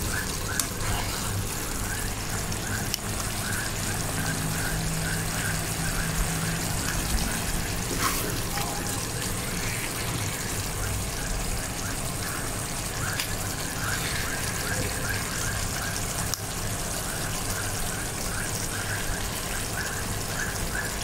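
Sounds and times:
gravy simmering and bubbling in a wok: 0.0 - 21.0
spatula stirring: 7.4 - 10.6.

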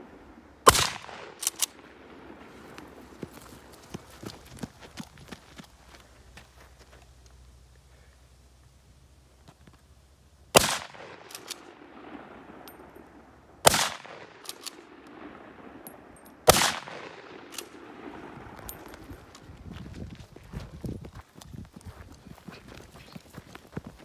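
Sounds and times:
rifle shots echoing: 0.6 - 2.5, 10.5 - 18.9
rifle bolt clicks: 0.7 - 1.8, 11.2 - 11.6, 13.8 - 14.8.

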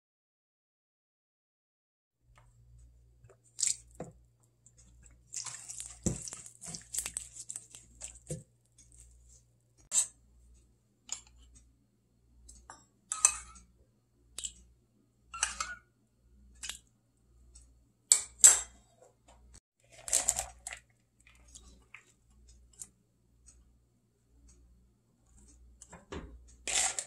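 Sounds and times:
kitchenware clinking and tapping: 12.6 - 13.6, 15.4 - 15.8.

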